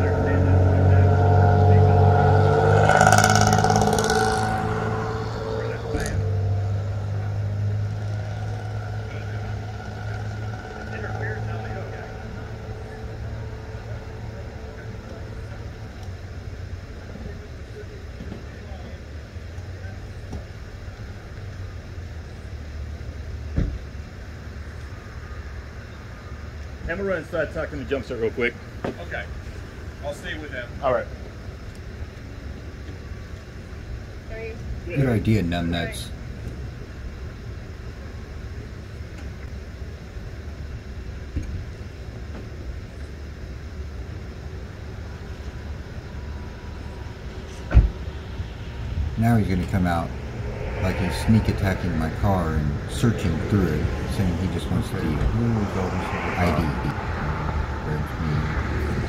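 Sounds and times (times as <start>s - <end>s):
car engine idling: 0.0s - 59.0s
short thump: 23.6s - 23.8s, 47.7s - 48.0s.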